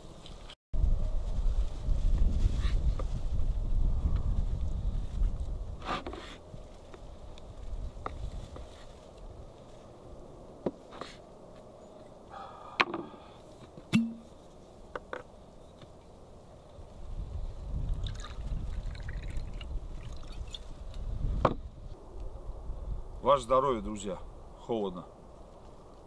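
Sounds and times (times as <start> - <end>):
bottle clicks and knocks: 14.0 - 14.3
liquid pouring: 18.0 - 20.6.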